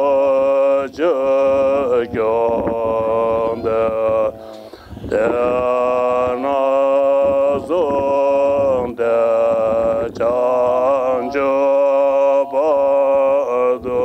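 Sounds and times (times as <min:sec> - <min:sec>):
monks chanting: 0:00.0 - 0:14.0.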